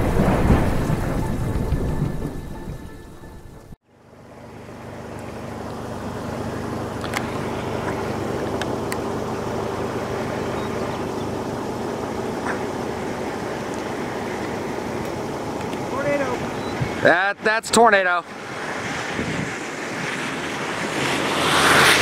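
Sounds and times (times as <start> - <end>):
vehicle engine running: 3.8 - 17.1
steady rushing noise: 9.8 - 22.0.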